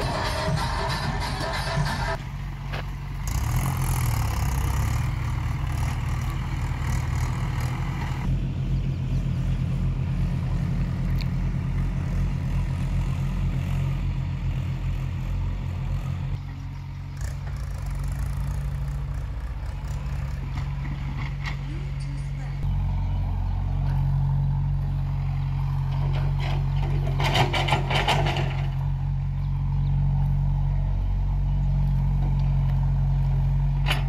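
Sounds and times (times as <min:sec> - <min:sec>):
rushing noise: 0:00.0 - 0:02.2
diesel engine chugging: 0:00.0 - 0:34.0.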